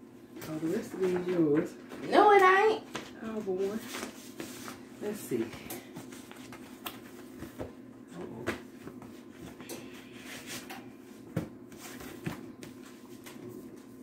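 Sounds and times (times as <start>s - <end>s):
paper and cardboard rustling: 0.5s - 7.7s.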